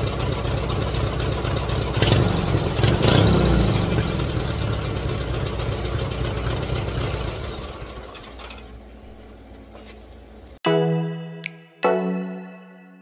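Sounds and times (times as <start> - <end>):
mower engine idling and revving: 0.0 - 10.6.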